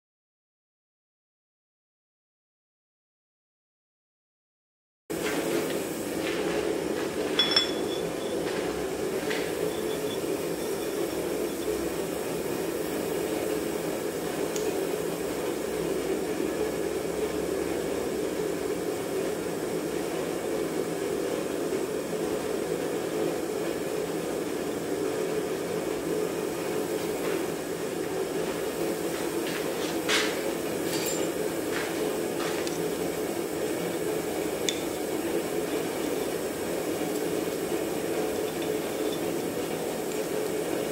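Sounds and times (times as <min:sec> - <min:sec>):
metal clinking on anvil: 0:07.4 - 0:08.4, 0:30.9 - 0:31.4.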